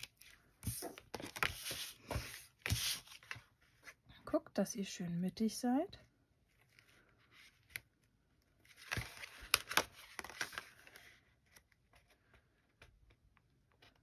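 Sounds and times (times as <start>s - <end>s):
card stock rustling scrape: 0.0s - 3.4s.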